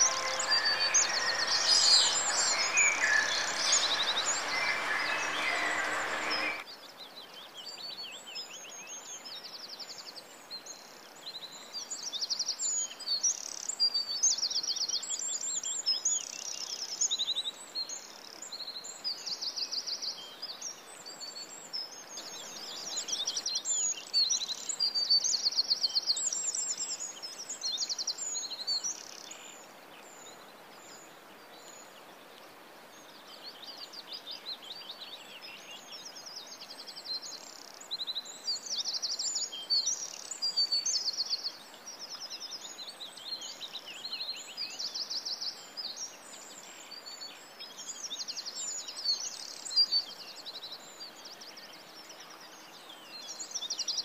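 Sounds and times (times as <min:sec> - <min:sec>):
bird singing buzzy trills: 0:00.0 - 0:06.6.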